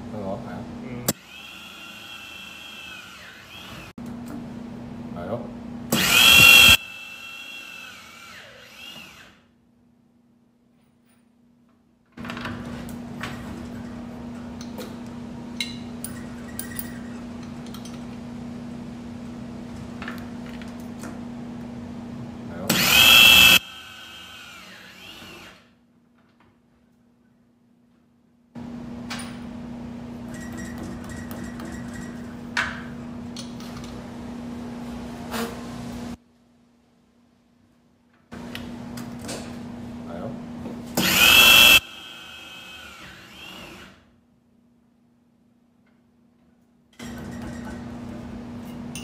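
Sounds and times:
drill press motor humming: 0:01.1 - 0:03.9, 0:05.9 - 0:09.4, 0:22.7 - 0:25.6, 0:41.0 - 0:44.0.

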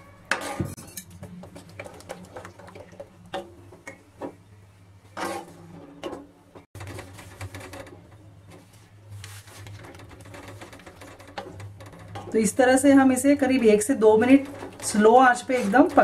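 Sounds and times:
wooden spatula scraping a pan: 0:05.1 - 0:06.1, 0:06.8 - 0:16.0.

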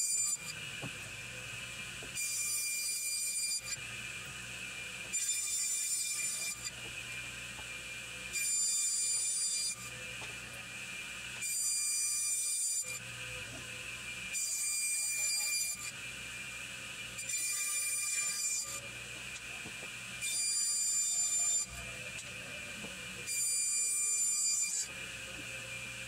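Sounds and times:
high saw squeal: 0:00.0 - 0:00.6, 0:02.2 - 0:03.9, 0:05.1 - 0:06.8, 0:08.3 - 0:10.0, 0:11.4 - 0:13.1, 0:14.3 - 0:16.0, 0:17.2 - 0:18.8, 0:20.2 - 0:22.0, 0:23.2 - 0:24.9
saw whine: 0:00.0 - 0:26.0.

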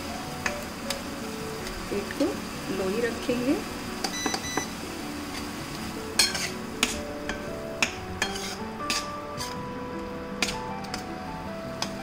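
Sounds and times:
metal spatula clinking on pan: 0:06.2 - 0:09.5
spatula stirring simmering sauce: 0:06.2 - 0:09.6.

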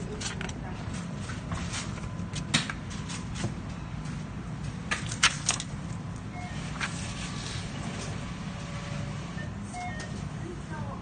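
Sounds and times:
paper rustling: 0:06.6 - 0:08.2.

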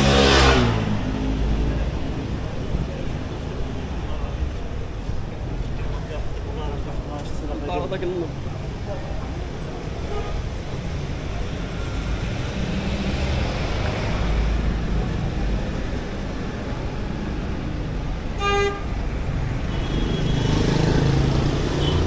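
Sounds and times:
street traffic rumbling: 0:00.0 - 0:22.0
car horn toot: 0:18.4 - 0:19.0.

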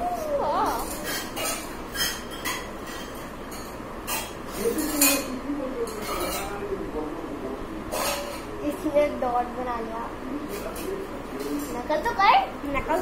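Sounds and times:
child squeaky vocal sounds: 0:00.0 - 0:01.4.

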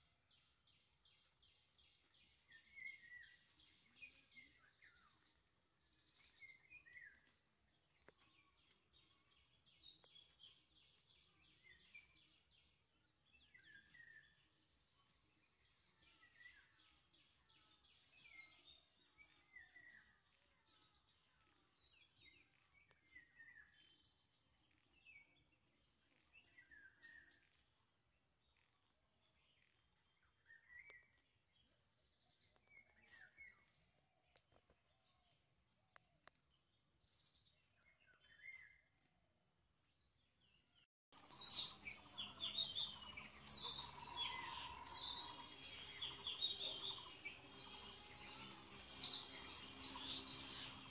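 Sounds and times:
birds chirping: 0:00.0 - 0:27.4, 0:39.9 - 0:50.9.

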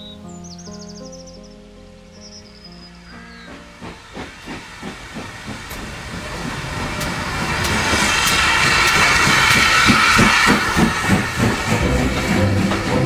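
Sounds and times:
steam hissing: 0:03.3 - 0:13.0
steam locomotive chuffing: 0:03.3 - 0:13.0.

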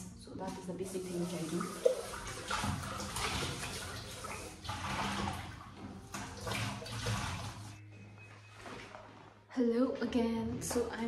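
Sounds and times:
water swishing in metal pot: 0:00.3 - 0:07.8.

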